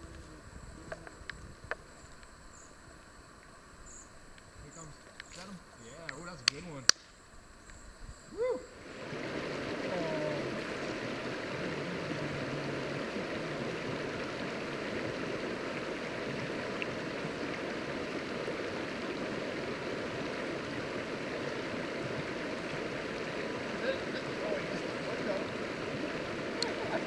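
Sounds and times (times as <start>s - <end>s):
river water running over stones: 8.7s - 27.0s.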